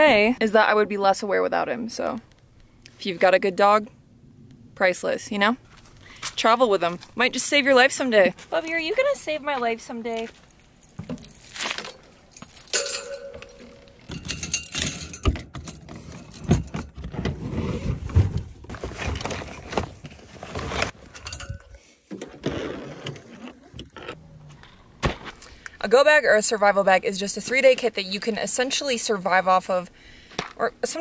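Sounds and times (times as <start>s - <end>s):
keys jangling in lock: 10.8s - 17.0s.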